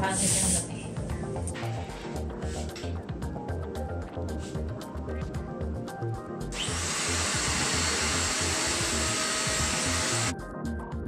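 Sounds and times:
background music with steady beat: 0.0 - 11.0
vacuum cleaner motor whining: 6.6 - 10.3.

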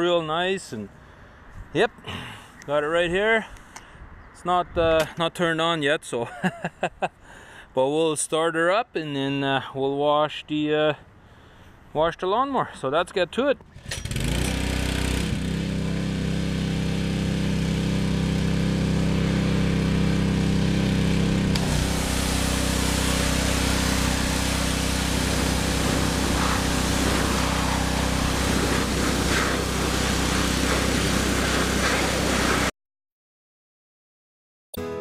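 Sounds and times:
small engine running: 13.8 - 32.7
high-pressure water spray hissing: 20.0 - 32.7.

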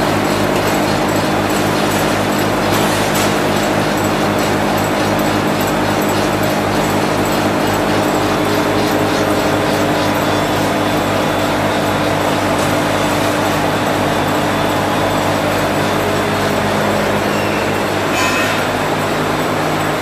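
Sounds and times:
carding machines droning: 0.0 - 20.0
high-pitched machine squeak: 17.2 - 18.9.

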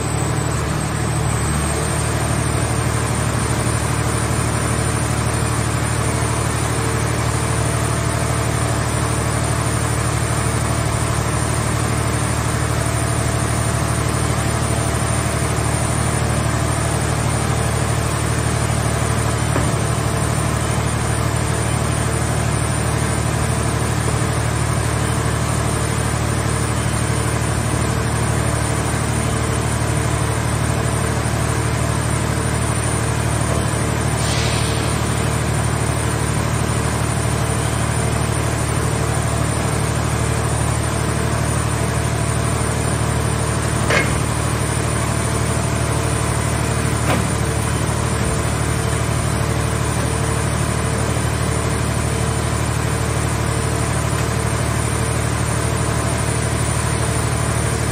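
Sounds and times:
hydraulic unit humming: 0.0 - 57.9
brief hiss: 34.2 - 35.1
sharp metal clanks: 43.9 - 44.4.

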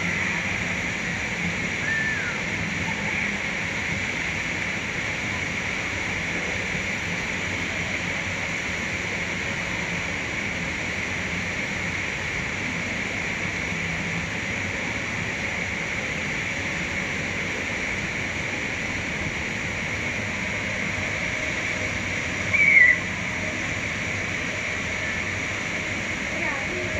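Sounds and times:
rushing water: 0.0 - 26.9.

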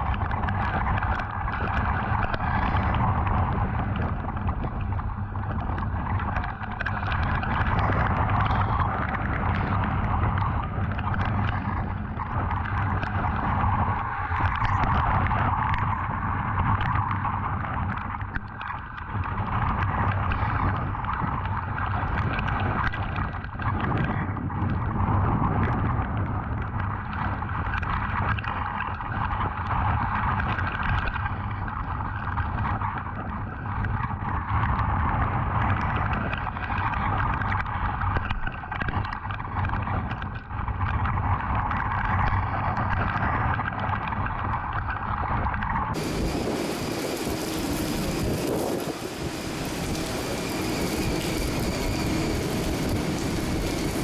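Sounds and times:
raindrops hitting camera: 0.0 - 24.8, 45.5 - 54.0
wind rushing: 45.9 - 54.0.

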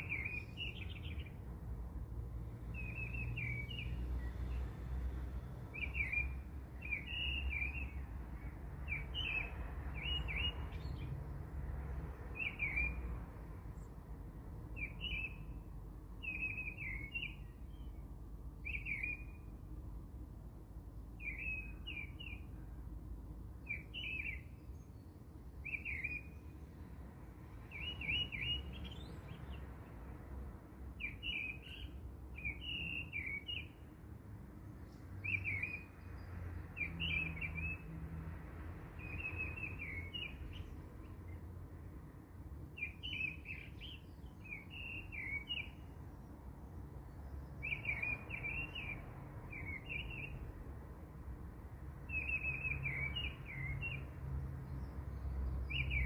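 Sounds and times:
small bird chirping: 0.0 - 1.4, 25.6 - 26.6, 27.6 - 29.6, 47.2 - 50.5.

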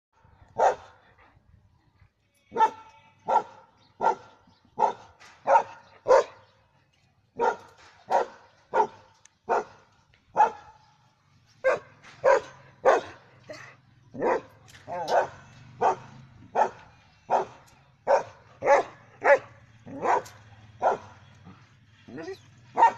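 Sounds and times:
dog barking: 0.6 - 1.0, 2.6 - 6.4, 7.4 - 9.8, 10.4 - 10.8, 11.6 - 13.2, 14.2 - 21.2, 22.1 - 22.9.

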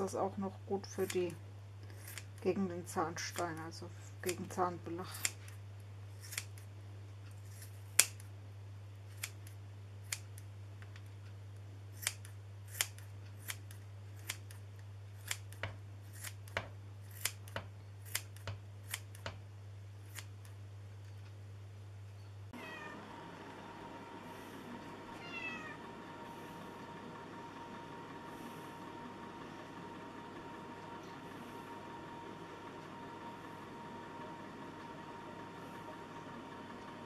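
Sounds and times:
steady low hum: 0.0 - 37.0
scissors snipping: 1.9 - 2.4, 6.2 - 6.7, 7.3 - 8.3, 9.1 - 11.1, 11.9 - 14.6, 15.2 - 19.4, 20.0 - 20.6.

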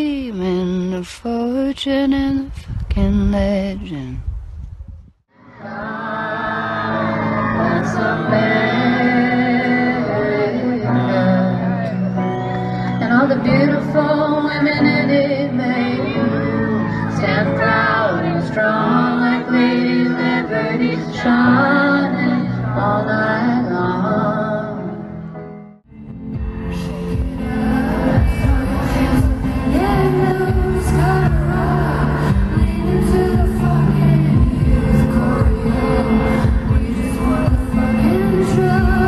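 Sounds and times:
woman singing pop: 0.0 - 4.2, 12.9 - 24.8, 27.4 - 39.0
backing music: 5.4 - 39.0.

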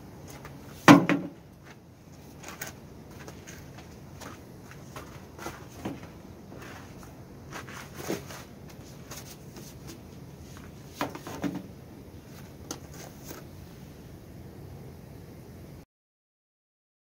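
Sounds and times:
low background noise: 0.0 - 15.8
rubber tyre thuds: 0.8 - 1.4.

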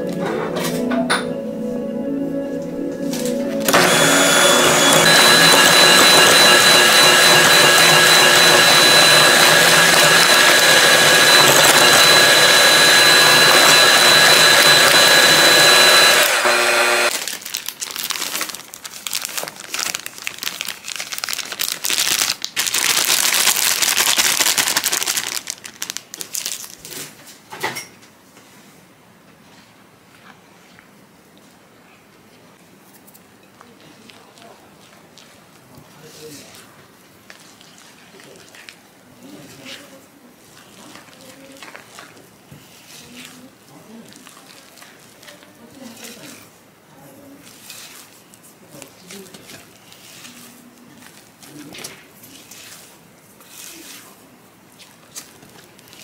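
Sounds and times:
electric hand mixer beating batter: 3.6 - 17.2.

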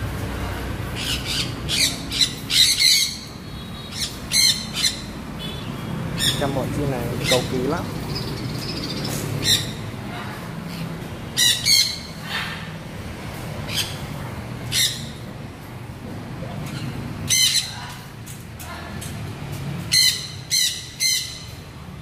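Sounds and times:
parrots squawking: 0.9 - 5.2, 6.1 - 12.9, 13.6 - 15.3, 16.5 - 19.0, 19.8 - 21.6.

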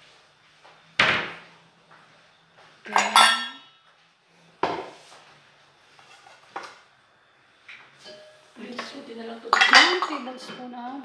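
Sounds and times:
dishes and utensils clinking: 2.9 - 3.8, 8.0 - 8.9, 9.5 - 10.7.

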